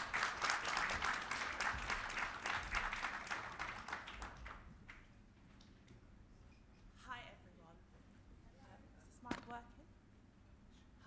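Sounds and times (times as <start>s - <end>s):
audience applauding: 0.0s - 4.6s.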